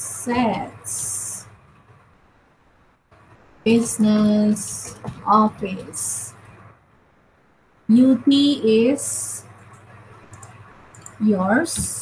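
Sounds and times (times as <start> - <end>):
woman speaking: 0.0 - 1.5, 3.7 - 6.4, 7.9 - 9.5, 11.2 - 12.0.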